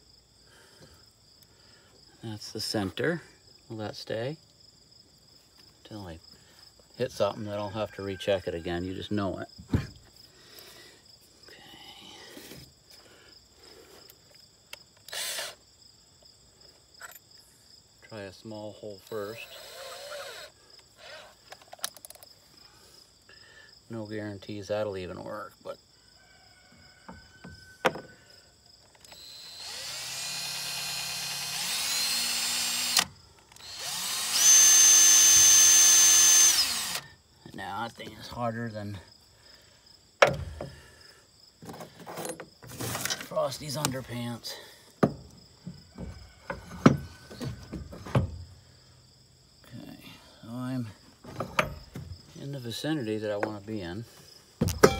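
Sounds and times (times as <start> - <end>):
crickets chirping: 0.0 - 54.9
cordless drill boring into steel: 15.1 - 15.6, 19.1 - 21.4, 29.0 - 37.0.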